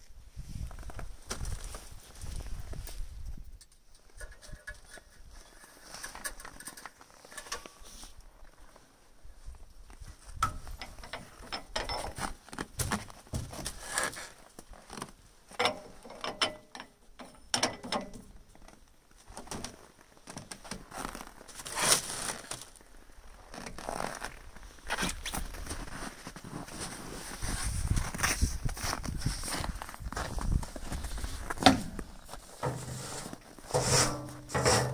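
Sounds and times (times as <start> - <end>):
gloved hand clicking and scraping engine: 31.5 - 34.9
metal clatter: 31.6 - 34.9.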